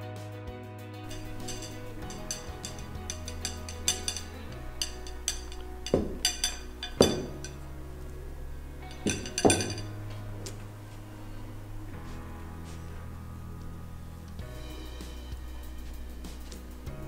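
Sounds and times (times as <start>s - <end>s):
background music with light beat: 0.0s - 17.0s
plates clinking on wooden table: 1.1s - 12.8s.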